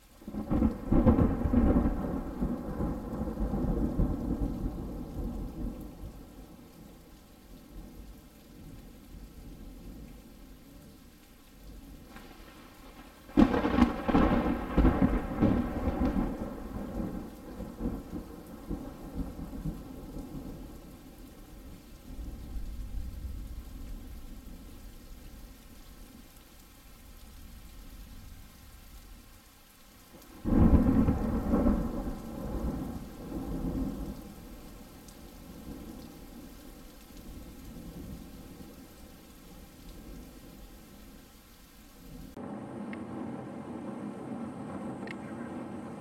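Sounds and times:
steady rain: 0.0s - 46.0s
thunder rumbling: 0.3s - 8.8s, 11.8s - 25.0s, 30.1s - 41.1s, 42.1s - 46.0s.

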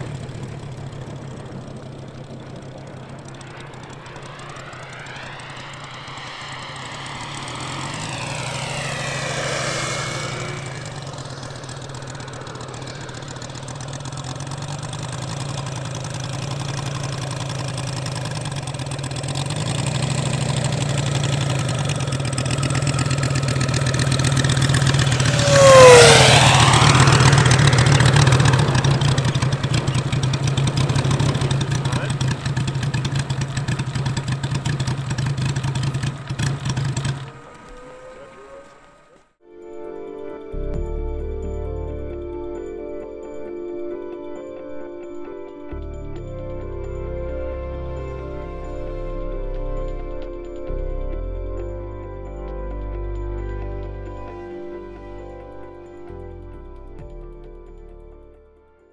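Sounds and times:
model plane radial engine idling: 0.0s - 39.3s.

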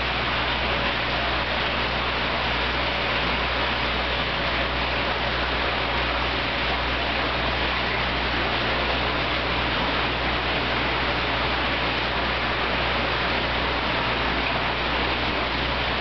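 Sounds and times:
aquarium pump rushing noise: 0.0s - 16.0s
low pump hum: 0.0s - 16.0s.

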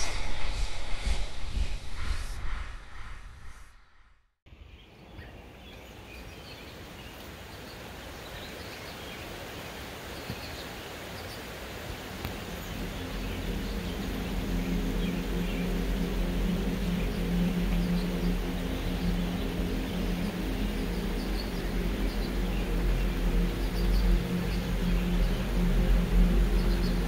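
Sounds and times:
flowing water: 5.9s - 27.0s
low steady hum: 12.0s - 27.0s.

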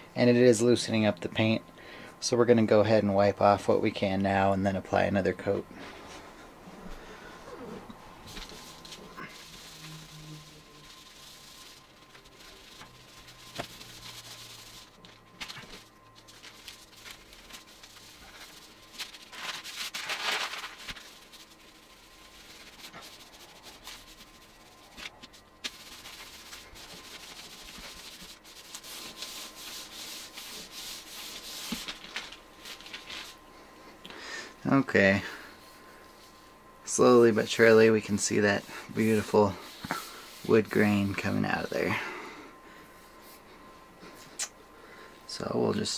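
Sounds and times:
cloth rag scrubbing wood: 7.6s - 33.4s, 36.3s - 42.1s.

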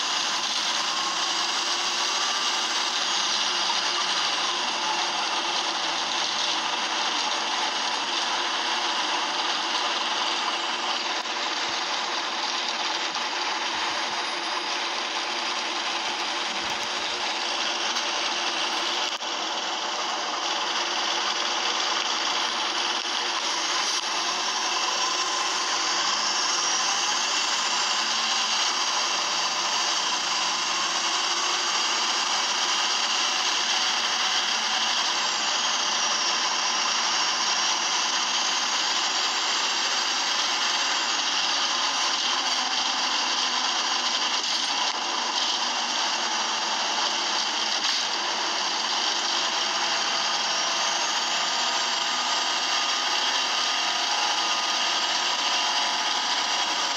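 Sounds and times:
bus engine running: 0.0s - 56.9s.

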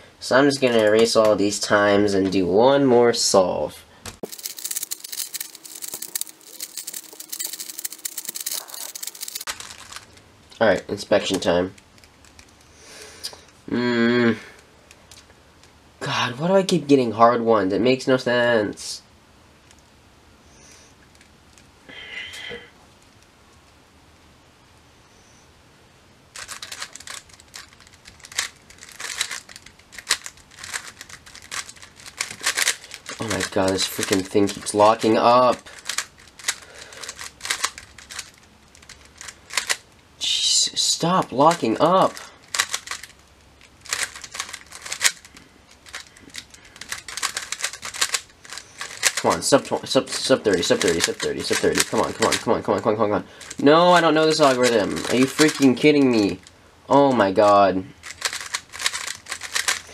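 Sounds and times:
speed cube plastic clicks: 4.2s - 10.2s, 26.4s - 39.8s, 42.5s - 52.5s, 54.3s - 56.5s, 58.0s - 59.9s.

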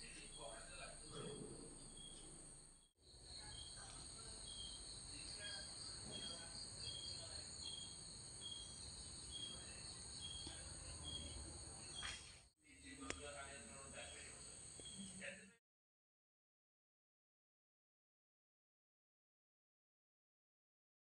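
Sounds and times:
cricket chirping: 0.0s - 12.3s, 13.2s - 15.4s
high insect drone: 1.8s - 12.1s, 13.5s - 15.4s.

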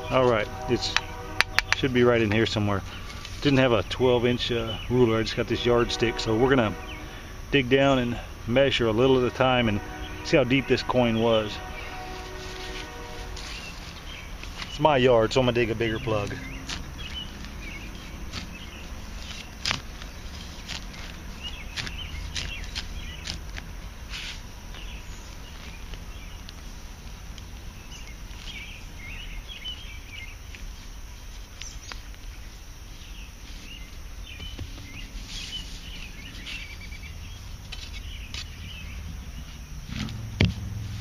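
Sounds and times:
low steady rumble: 0.0s - 41.0s
crunching clicks in dirt: 0.9s - 1.9s, 16.2s - 32.5s, 33.8s - 38.8s
knife cutting sod: 16.6s - 24.9s.

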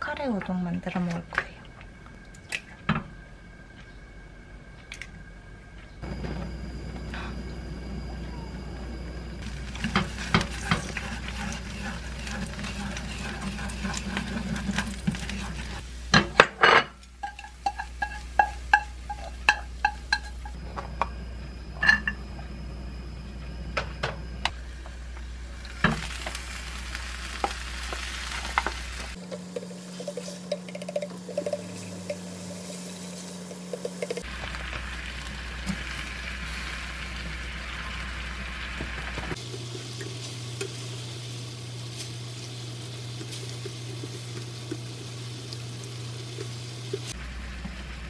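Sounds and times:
food sizzling in a pan: 9.4s - 20.6s, 24.5s - 48.0s
chopsticks tapping in a frying pan: 17.2s - 20.5s, 28.6s - 32.3s.

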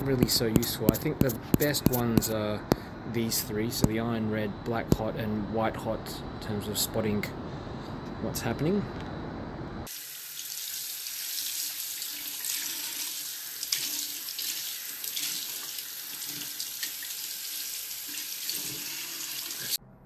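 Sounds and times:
tap water running into sink: 9.9s - 19.8s.

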